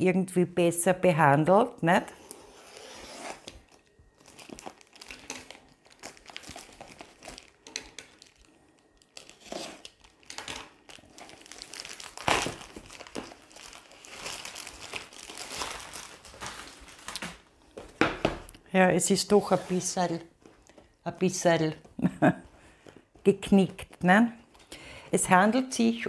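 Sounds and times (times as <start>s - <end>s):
plastic bag crinkling and tearing: 2.4s - 17.8s.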